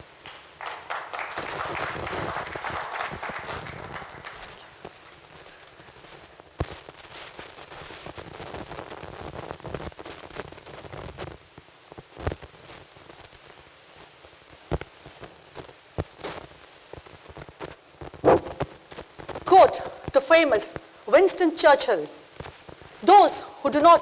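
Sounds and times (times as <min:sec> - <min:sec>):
soft rustling of hall: 0:00.0 - 0:08.1.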